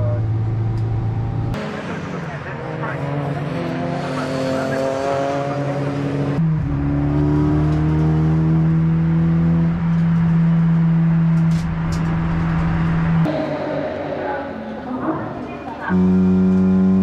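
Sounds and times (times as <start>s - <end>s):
race car engine accelerating: 0.0s - 14.0s, 15.3s - 17.0s.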